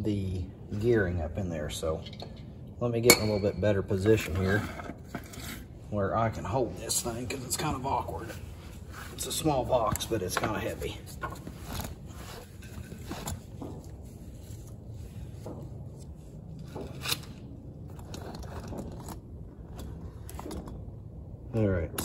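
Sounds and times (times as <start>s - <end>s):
scraping and rustling handling noise: 3.9s - 20.9s.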